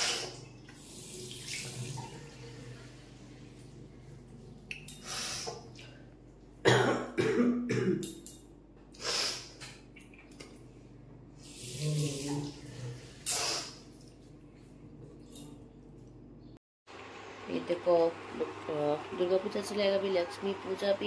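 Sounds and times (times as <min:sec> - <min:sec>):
woman clearing her throat: 0:06.6 - 0:08.1
woman coughing: 0:06.6 - 0:08.1.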